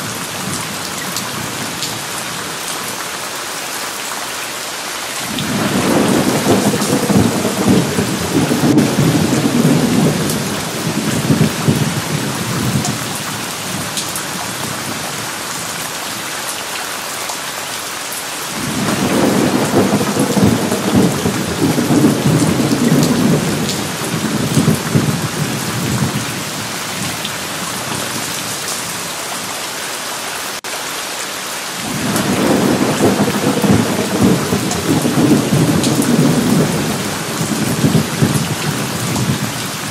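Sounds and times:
steady rain: 0:00.0 - 0:39.9
thunder rolling: 0:05.3 - 0:12.9, 0:18.6 - 0:26.3, 0:31.9 - 0:39.9.

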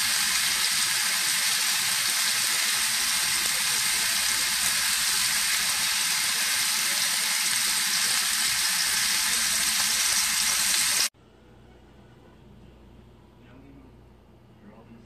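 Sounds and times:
steak sizzling in a grill pan: 0:00.0 - 0:11.1.

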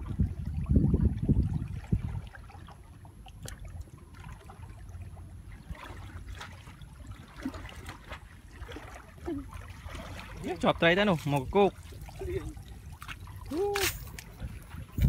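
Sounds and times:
water splashing and trickling: 0:00.0 - 0:15.0.

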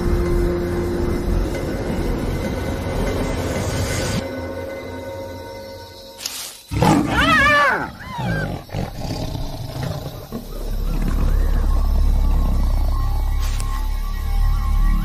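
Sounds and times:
animal crying: 0:06.8 - 0:12.6.

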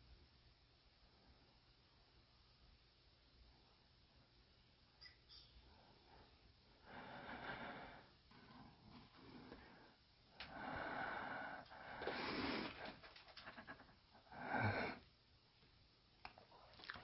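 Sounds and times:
person breathing heavily: 0:05.9 - 0:08.2, 0:09.1 - 0:15.1.

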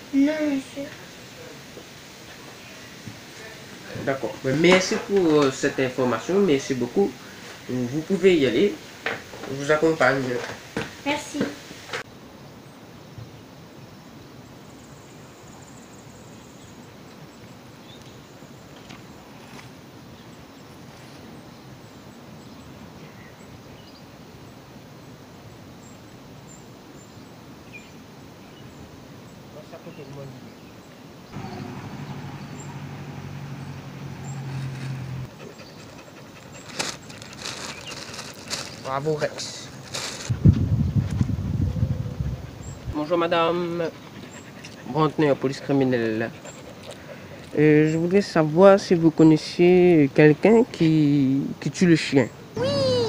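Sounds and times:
outdoor background noise: 0:00.0 - 0:53.0
plastic bag crinkling: 0:36.6 - 0:40.4.

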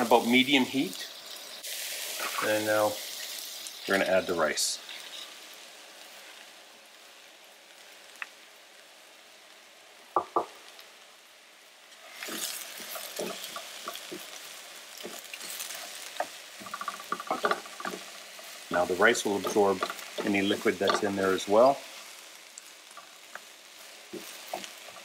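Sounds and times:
rice pouring: 0:00.0 - 0:05.3, 0:16.6 - 0:22.0
vegetables sizzling in a frying pan: 0:00.0 - 0:25.0
sharp knocks: 0:10.2 - 0:10.5.

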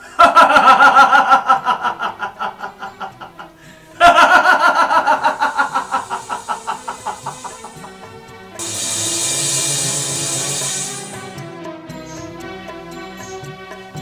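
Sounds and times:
high-pitched laughter: 0:00.0 - 0:08.1.

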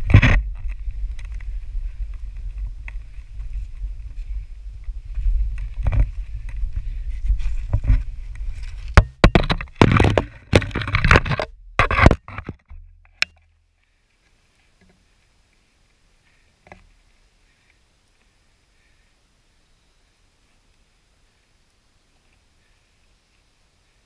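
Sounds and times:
camera scraping against boulder: 0:00.0 - 0:04.4, 0:05.2 - 0:12.8
wind rumble on microphone: 0:00.0 - 0:12.4.

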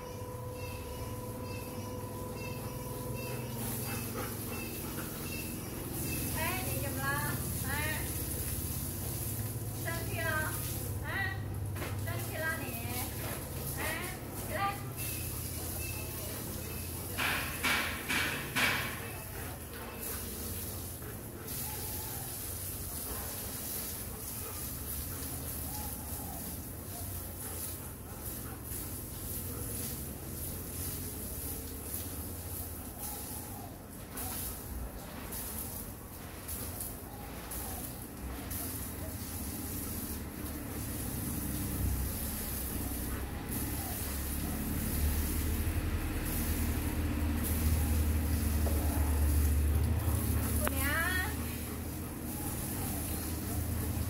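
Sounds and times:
garden hose spraying water: 0:00.0 - 0:54.0.

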